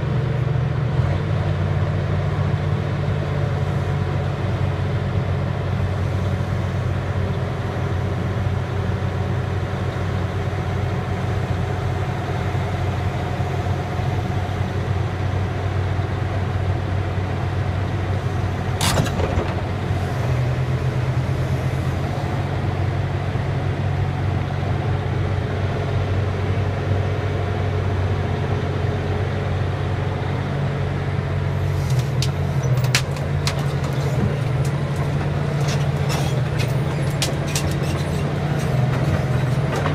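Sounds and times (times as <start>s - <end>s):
excavator diesel engine droning: 0.0s - 39.9s
sharp metal clank: 18.8s - 19.3s
sharp clicks and knocks: 18.8s - 19.7s, 31.8s - 39.9s.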